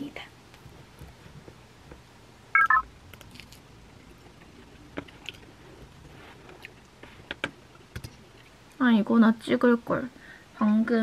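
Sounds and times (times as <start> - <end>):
short electronic beeps: 2.6 - 2.8.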